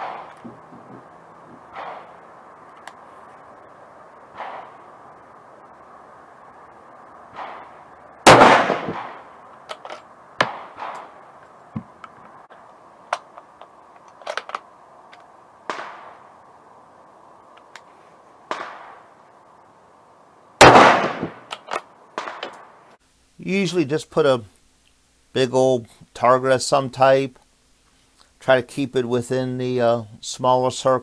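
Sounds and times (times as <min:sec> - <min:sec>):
rifle shots with echo: 0:00.0 - 0:00.9, 0:01.6 - 0:02.1, 0:04.3 - 0:04.8, 0:07.3 - 0:09.4, 0:10.4 - 0:11.2, 0:15.7 - 0:16.2, 0:18.5 - 0:19.0, 0:20.6 - 0:21.5
metallic rifle handling clicks: 0:09.6 - 0:10.1, 0:13.1 - 0:15.3, 0:21.4 - 0:22.6.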